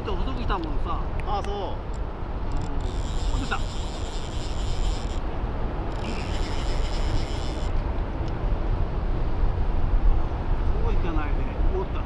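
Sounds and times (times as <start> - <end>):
thin high whirring: 2.5 - 8.2.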